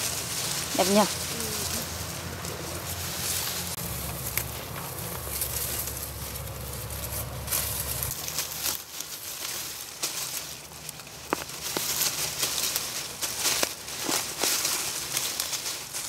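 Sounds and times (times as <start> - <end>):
dry straw rustling and crackling: 0.0 - 16.0.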